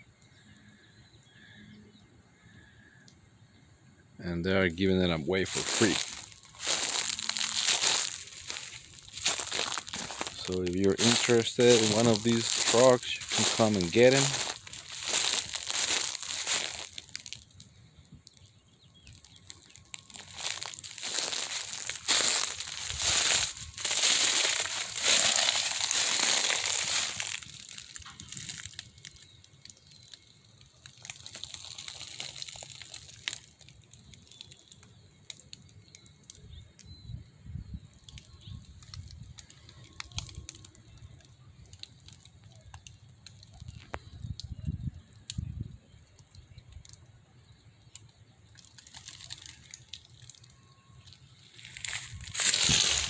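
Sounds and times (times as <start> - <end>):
footsteps crunching dry leaves: 4.7 - 17.7, 18.3 - 34.8, 38.9 - 40.5, 48.5 - 53.0.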